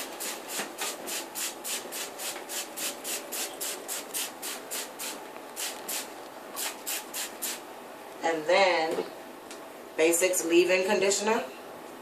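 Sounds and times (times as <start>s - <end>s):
spray bottle squirting: 0.2s - 7.6s.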